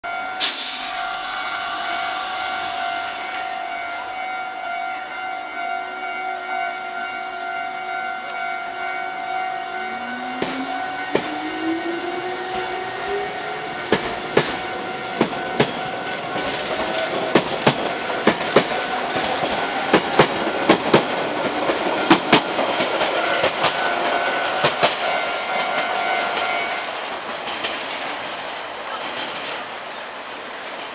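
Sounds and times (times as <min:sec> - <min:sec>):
electric train motor whine: 0:09.6 - 0:14.8
wheels clacking over rail joints: 0:09.9 - 0:30.9.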